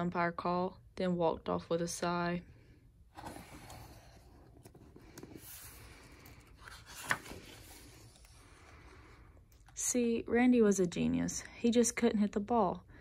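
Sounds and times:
book pages rustling: 0:03.1 - 0:09.0.

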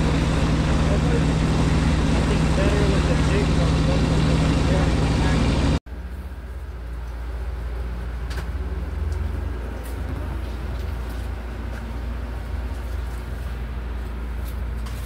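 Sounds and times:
engine droning: 0:00.0 - 0:15.0.

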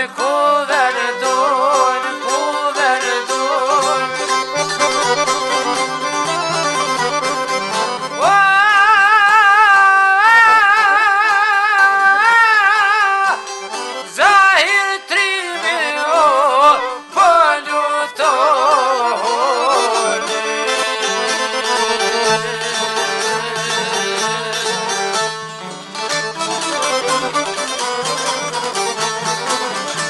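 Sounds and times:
folk melody with vibrato: 0:00.0 - 0:30.0
steady lower accompaniment: 0:01.6 - 0:09.6.

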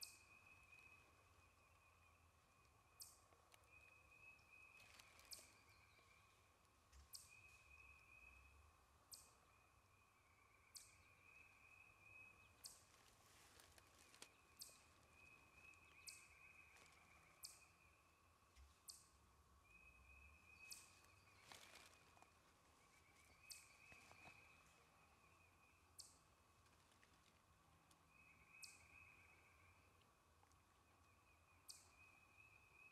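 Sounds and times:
distant bird trills: 0:00.0 - 0:26.4
songbird chip notes: 0:00.0 - 0:27.2, 0:27.8 - 0:32.9
soft rustles: 0:12.8 - 0:15.1, 0:21.0 - 0:24.8, 0:26.6 - 0:27.5.

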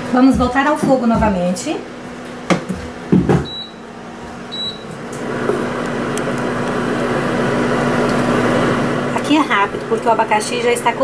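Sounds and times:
short electronic beeps: 0:03.5 - 0:03.8, 0:04.5 - 0:04.9.

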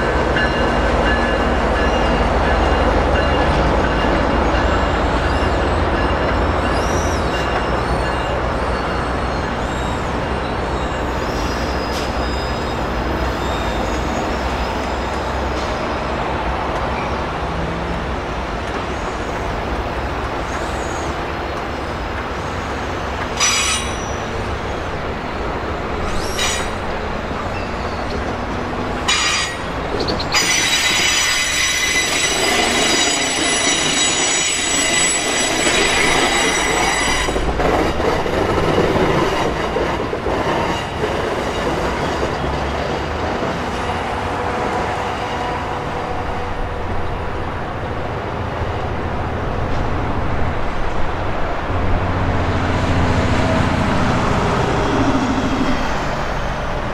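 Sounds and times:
passenger train rumbling past: 0:00.0 - 0:56.9
train wheels squealing: 0:00.4 - 0:15.8, 0:23.4 - 0:24.5, 0:26.0 - 0:26.8, 0:27.4 - 0:28.3, 0:29.1 - 0:37.6.

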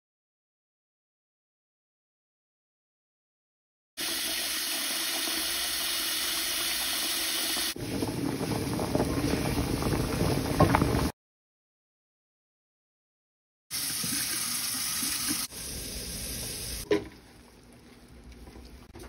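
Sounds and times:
tap water pouring into pot: 0:04.0 - 0:10.8, 0:13.8 - 0:18.9
water boiling and bubbling: 0:04.0 - 0:11.1, 0:13.8 - 0:19.0.

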